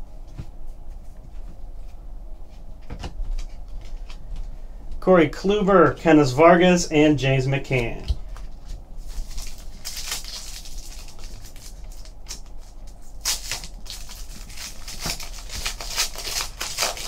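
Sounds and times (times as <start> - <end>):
foil wrapper crinkling and tearing: 9.0 - 17.0.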